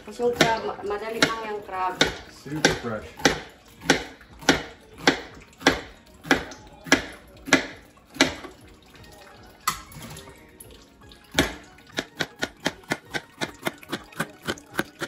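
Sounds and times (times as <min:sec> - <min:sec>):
knife chopping on plastic board: 0:00.3 - 0:08.4, 0:11.4 - 0:15.0.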